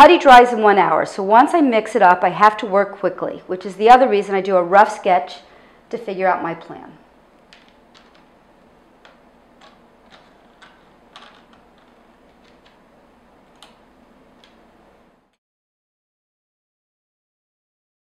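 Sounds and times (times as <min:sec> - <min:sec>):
metal jewelry clicking on tabletop: 0:07.4 - 0:08.3, 0:09.0 - 0:12.8.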